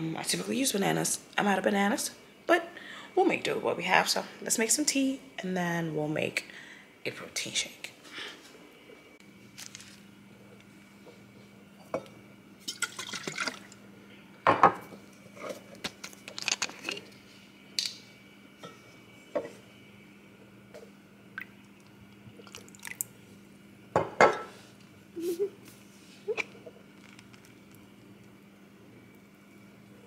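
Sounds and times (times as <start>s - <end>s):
steady low hum: 0.0s - 30.0s
cups and glassware clinking: 11.8s - 13.6s, 24.0s - 24.5s
liquid pouring: 12.7s - 13.8s, 21.4s - 23.2s.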